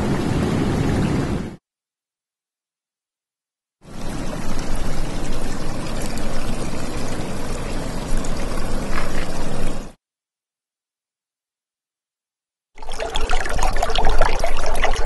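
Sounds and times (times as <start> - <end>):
rushing pouring water: 3.9 - 10.0, 12.8 - 15.0.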